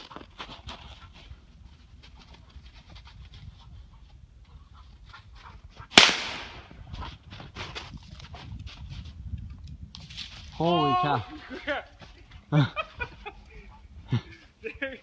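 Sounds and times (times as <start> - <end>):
gunshot: 5.9 - 6.7.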